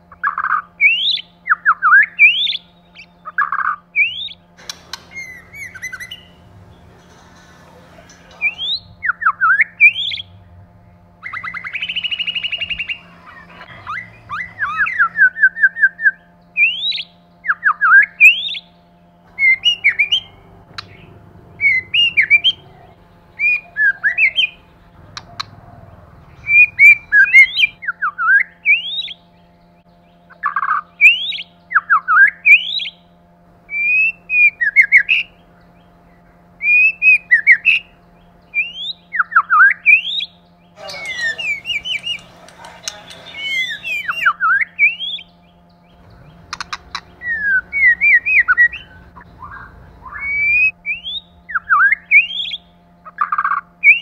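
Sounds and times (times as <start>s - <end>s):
faint steady hum: 0.0s - 54.0s
bird singing whistled notes: 0.8s - 3.4s, 4.0s - 4.4s, 5.0s - 6.4s, 8.3s - 10.4s, 11.2s - 21.0s, 23.3s - 25.6s, 26.3s - 33.0s, 36.6s - 53.2s.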